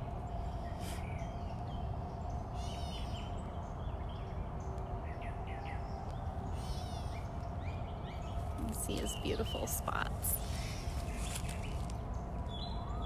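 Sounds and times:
birds chirping: 0.0s - 13.0s
faint hum: 0.0s - 13.0s
low outdoor rumble: 0.0s - 13.0s.

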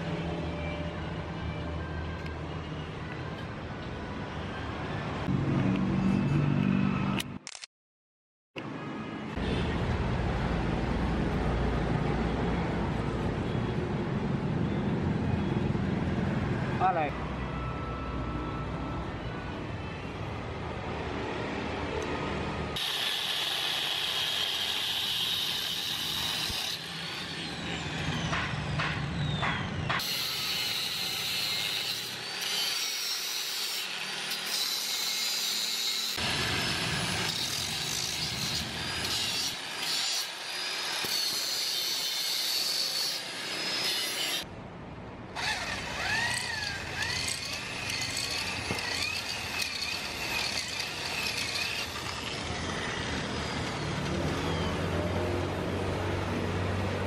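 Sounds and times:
electric drill boring into metal: 22.8s - 28.4s, 30.0s - 44.4s, 45.4s - 54.7s
angle grinder cutting steel: 22.8s - 29.4s, 30.0s - 44.5s, 45.4s - 54.8s.

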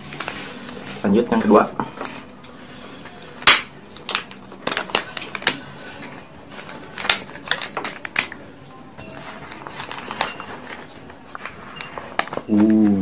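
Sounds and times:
newspaper crinkling: 9.1s - 12.9s.

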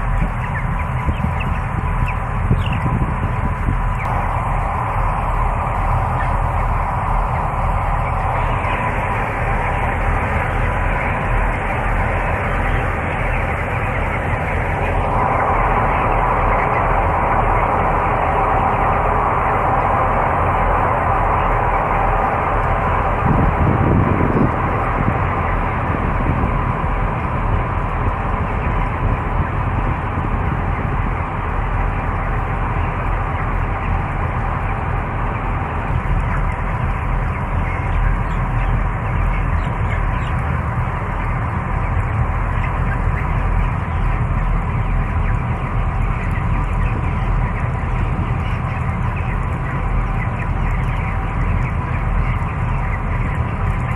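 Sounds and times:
murmur of chickens: 0.0s - 53.9s
ventilation fans droning: 0.0s - 53.9s.

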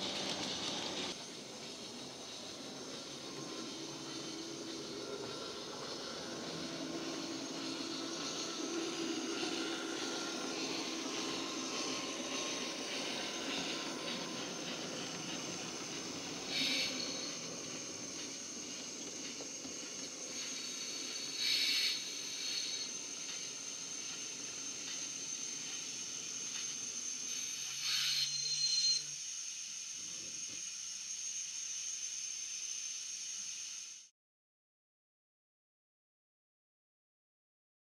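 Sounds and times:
steady steam hiss: 0.0s - 34.1s
short blasts of steam: 20.2s - 24.3s.

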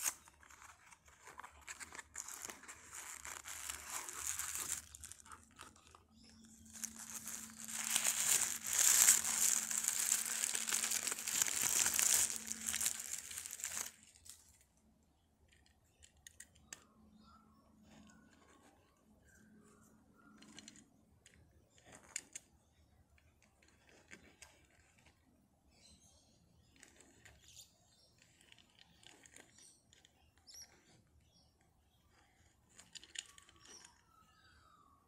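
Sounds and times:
faint rustling: 0.0s - 14.4s.

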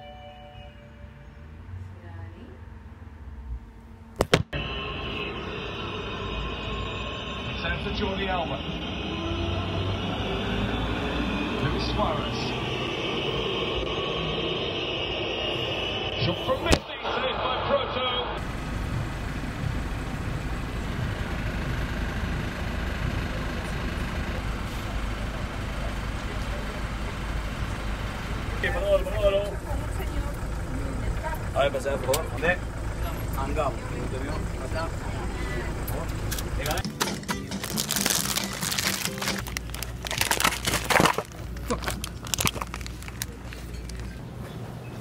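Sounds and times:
bus engine rumbling: 0.0s - 45.0s
plastic bags crinkling: 37.4s - 44.1s.

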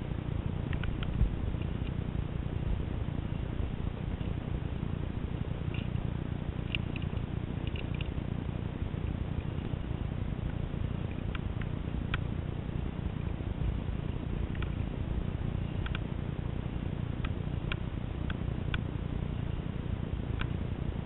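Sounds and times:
light sharp clicks: 0.7s - 2.0s, 6.6s - 8.2s, 14.5s - 14.8s, 15.8s - 16.1s, 17.2s - 18.9s, 20.4s - 20.6s.

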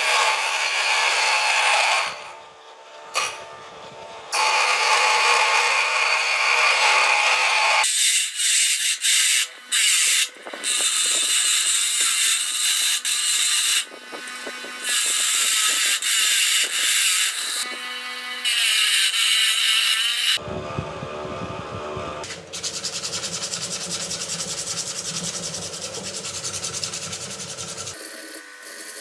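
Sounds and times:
bench grinder humming: 0.0s - 29.0s
grinding wheel hissing on steel: 20.3s - 29.0s.

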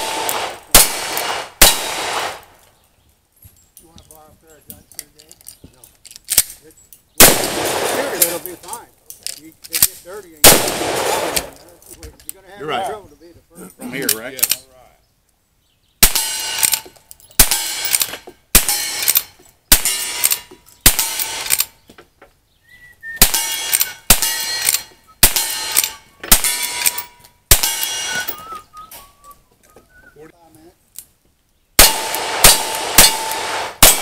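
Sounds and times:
lever-action rifle shots: 0.0s - 2.5s, 7.2s - 8.4s, 9.8s - 11.6s, 16.0s - 21.7s, 23.2s - 28.4s, 31.8s - 34.0s
steel targets ringing: 23.3s - 28.4s.

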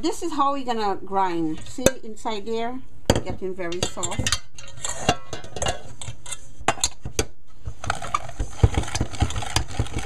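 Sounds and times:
hand-cranked food grinder clanking: 7.9s - 10.0s.

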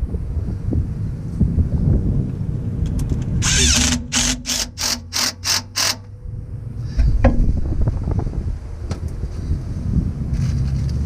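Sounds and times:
impact driver bursts: 3.4s - 6.1s.

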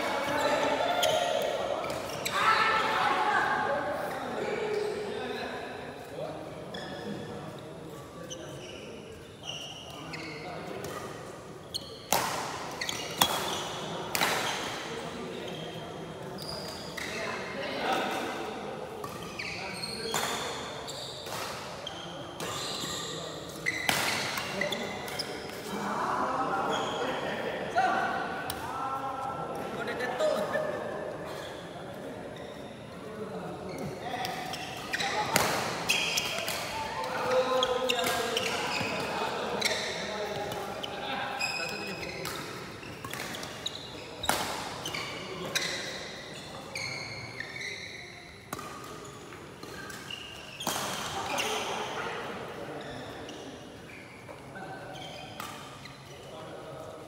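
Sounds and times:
shoes squeaking on court: 0.1s - 2.4s, 6.7s - 7.2s, 8.2s - 14.6s, 15.5s - 17.4s, 19.0s - 25.7s, 26.6s - 27.0s, 31.3s - 32.8s, 33.6s - 52.0s, 52.7s - 56.3s
racket hitting shuttlecock: 12.1s - 14.5s, 48.5s - 49.0s.

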